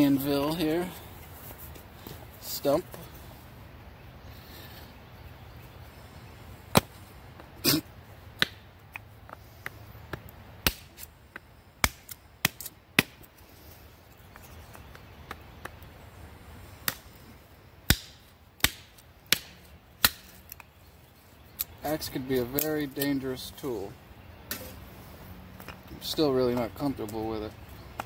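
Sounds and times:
axe chopping wood: 6.7 - 7.0, 8.4 - 8.6, 9.6 - 13.3, 16.8 - 17.1, 17.8 - 20.6.

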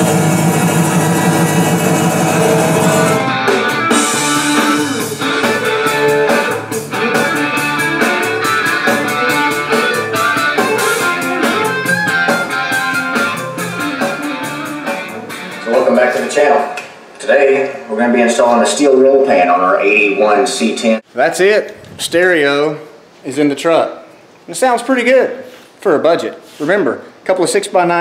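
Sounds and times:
rock music through car speakers: 0.0 - 15.8.

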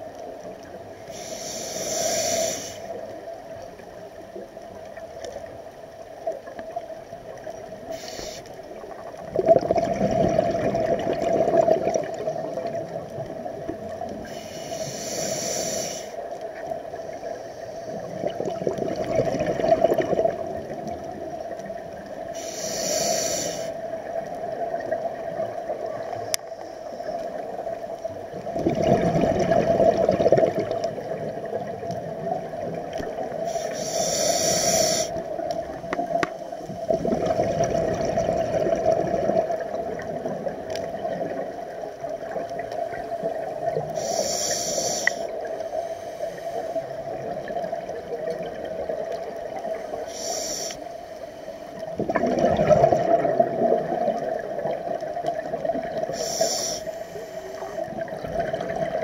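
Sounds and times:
regulator hissing: 1.1 - 3.0, 7.9 - 8.5, 14.3 - 16.2, 22.3 - 23.8, 33.4 - 35.2, 43.9 - 46.8, 49.9 - 51.0, 56.1 - 57.7
exhaled bubbles rushing: 8.8 - 14.2, 18.0 - 21.4, 28.3 - 33.4, 36.8 - 43.9, 51.8 - 56.2, 57.8 - 59.0.

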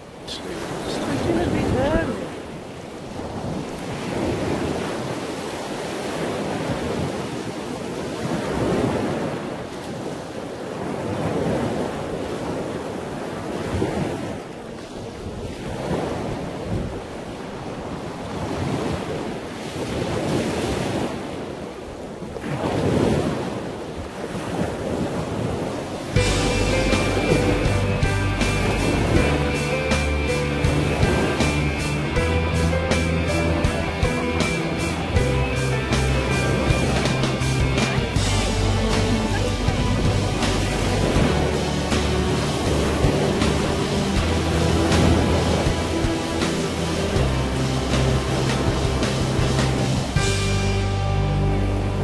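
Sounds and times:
wind rushing over microphone: 0.0 - 32.9
surf: 0.0 - 52.0
music: 26.2 - 52.0.

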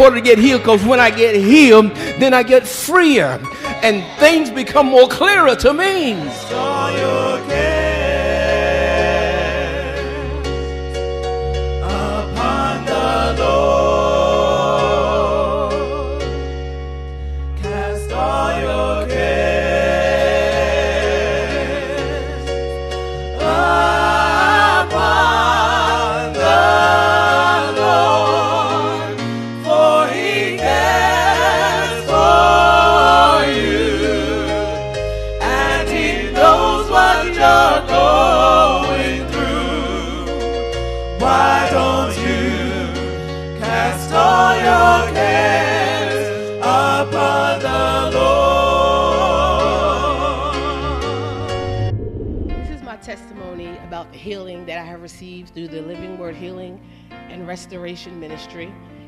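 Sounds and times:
gospel singing: 0.0 - 52.0
low bass accompaniment: 50.9 - 53.2.

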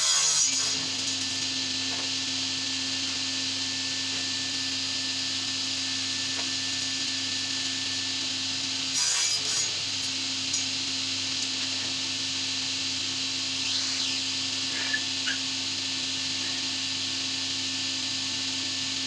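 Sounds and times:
blade sawing through wood: 0.0 - 1.7, 6.4 - 12.6, 13.3 - 15.6
panel saw running: 0.0 - 19.0.

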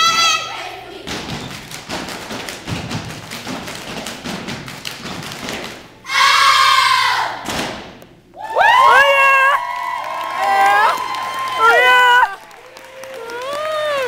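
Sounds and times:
children stamping and clapping: 1.0 - 5.9, 9.6 - 14.0.

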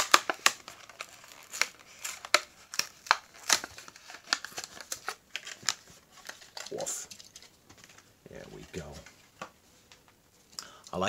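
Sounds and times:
plastic blister tearing off card: 0.0 - 8.0.

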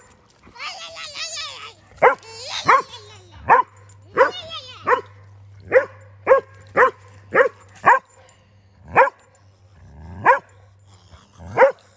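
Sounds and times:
dog barking: 2.0 - 8.1, 8.9 - 9.2, 10.2 - 10.6, 11.6 - 11.8.

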